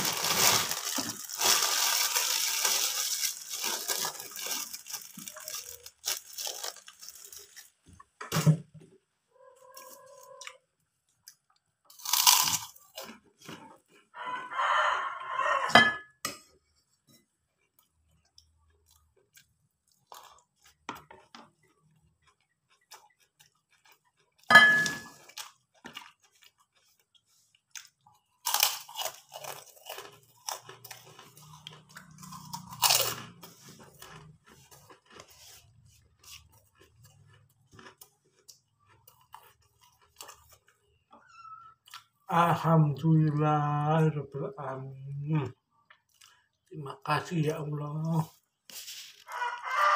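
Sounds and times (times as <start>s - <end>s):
crackling chewing: 0.0s - 8.1s, 9.4s - 15.7s, 17.0s - 43.4s, 44.8s - 49.9s
sharp crunches of biting cracker: 11.9s - 13.2s, 27.8s - 35.3s.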